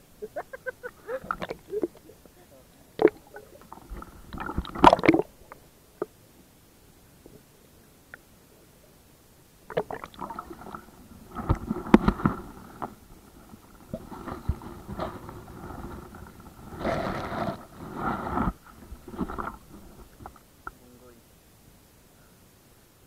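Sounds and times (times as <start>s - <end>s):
water gurgling: 0.0s - 6.3s, 9.6s - 20.8s
muffled underwater knocks and clicks: 9.7s - 16.5s.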